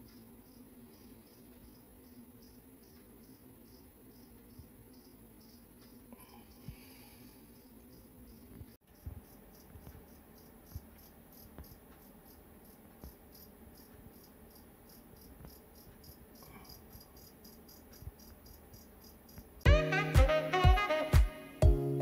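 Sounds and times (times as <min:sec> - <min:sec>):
crickets chirping: 0:00.0 - 0:19.7
loud music: 0:19.7 - 0:22.0.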